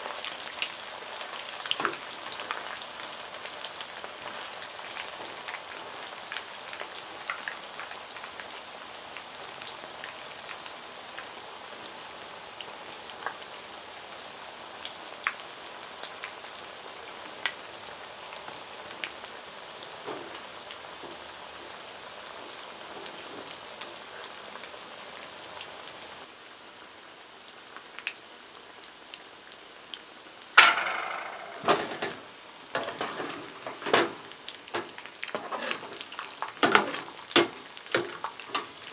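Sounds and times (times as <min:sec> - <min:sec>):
food sizzling in hot oil: 0:00.0 - 0:38.9
metal spoon clattering on pan: 0:30.6 - 0:32.2, 0:32.8 - 0:34.2, 0:34.8 - 0:38.8.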